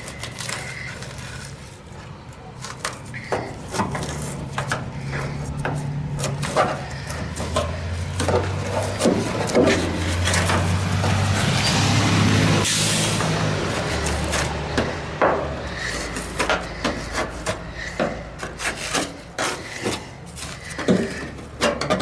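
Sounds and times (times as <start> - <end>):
foam crunching: 0.0 - 1.8
screwdriver scraping foam: 15.8 - 21.6.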